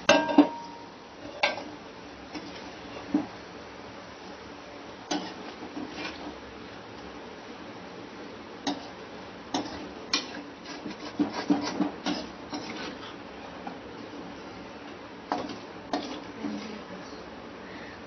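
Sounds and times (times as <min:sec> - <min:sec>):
metal spatula scraping pot: 0:05.1 - 0:06.3, 0:09.5 - 0:13.2, 0:15.3 - 0:16.8.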